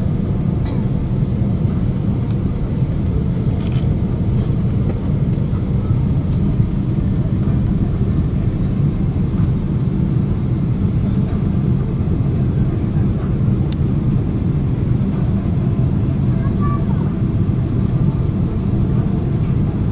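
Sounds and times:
jet airliner cabin roar: 0.0s - 19.9s.

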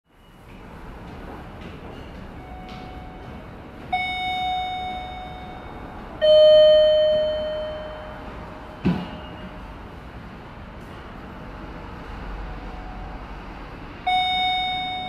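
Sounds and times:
two-note descending chime: 4.4s - 8.4s.

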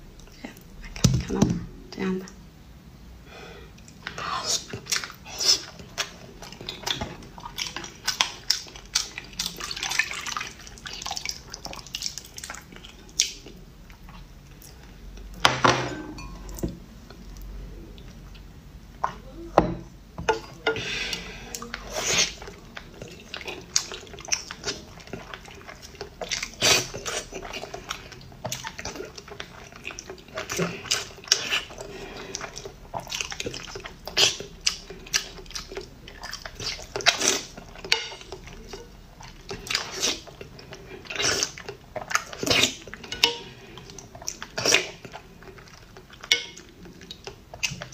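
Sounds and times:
liquid pouring and splashing: 7.0s - 13.4s
spoon clinking against bowl: 15.9s - 16.6s.

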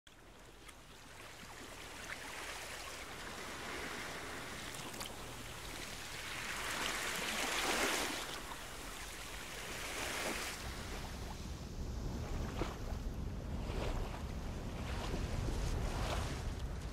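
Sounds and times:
sea waves washing in: 0.2s - 16.9s.

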